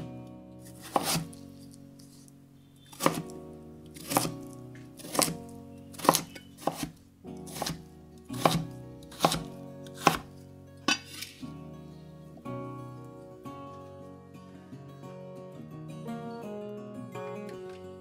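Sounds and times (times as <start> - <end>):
knife chopping potato on board: 0.6 - 1.4, 2.9 - 11.4.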